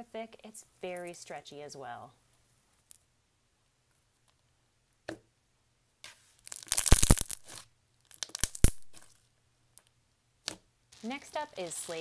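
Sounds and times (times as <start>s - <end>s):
slime crackling with bubble pops: 6.5s - 7.5s, 8.1s - 9.0s.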